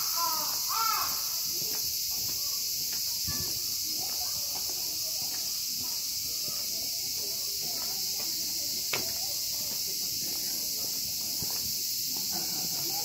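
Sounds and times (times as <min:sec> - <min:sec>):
crow cawing: 0:00.0 - 0:01.5
high-pitched insect chorus: 0:00.0 - 0:13.0.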